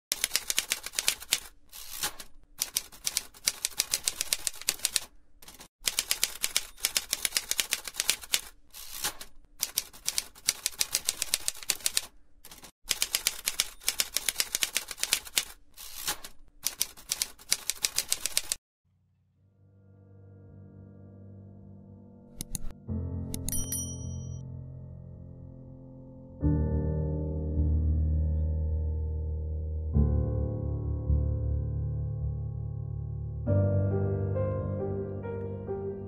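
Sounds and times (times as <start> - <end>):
typewriter keys clacking: 0.1 - 18.6, 22.4 - 22.7.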